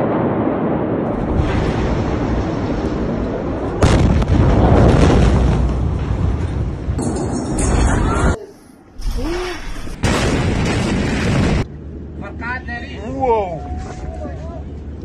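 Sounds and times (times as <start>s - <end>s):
huge explosion blast: 0.0s - 8.4s, 9.8s - 11.7s
steady noisy rumble: 11.0s - 15.0s.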